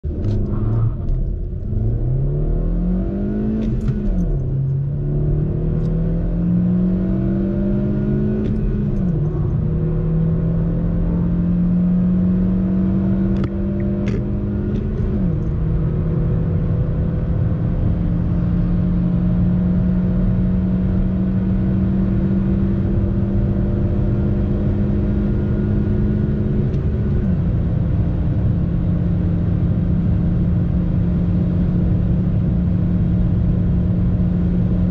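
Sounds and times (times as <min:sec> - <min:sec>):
car engine accelerating through gears: 0:00.1 - 0:34.9.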